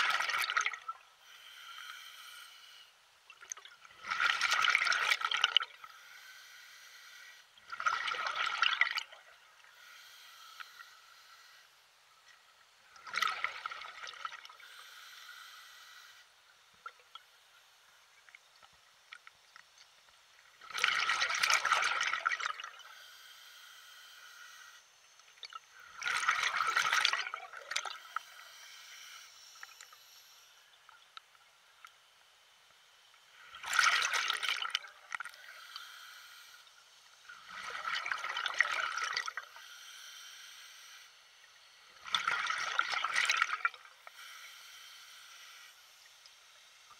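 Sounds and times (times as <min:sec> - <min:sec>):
water sloshing and splashing: 0:07.7 - 0:09.3, 0:12.9 - 0:14.6, 0:20.6 - 0:22.8, 0:25.3 - 0:28.0, 0:33.5 - 0:35.4, 0:37.3 - 0:39.4, 0:42.0 - 0:43.9.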